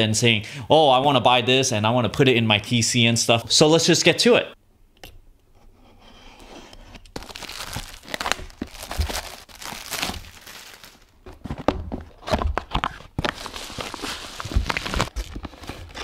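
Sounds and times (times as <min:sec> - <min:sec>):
plastic wrap crinkling and crackling: 0:07.1 - 0:16.0
knife slitting plastic wrap: 0:07.2 - 0:11.1.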